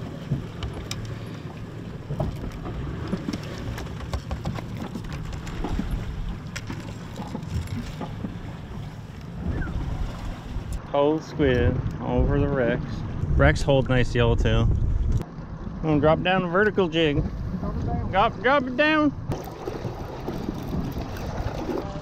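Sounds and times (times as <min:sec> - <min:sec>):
low rumble of boat: 0:00.0 - 0:22.0
wind buffeting microphone: 0:07.2 - 0:10.8, 0:11.4 - 0:15.2.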